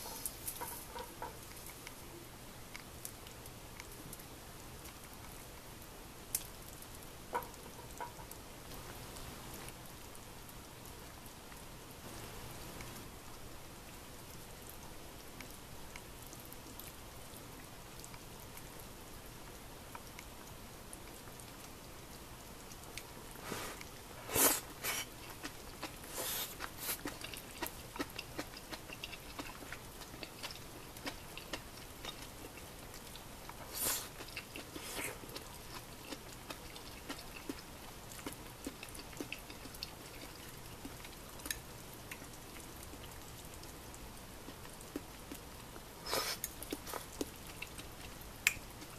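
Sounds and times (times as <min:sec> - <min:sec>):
faint chewing: 0:00.0 - 0:05.7, 0:06.3 - 0:09.8, 0:13.9 - 0:21.9, 0:22.6 - 0:48.9
slurps: 0:23.4 - 0:27.4, 0:33.6 - 0:35.2, 0:46.0 - 0:47.2.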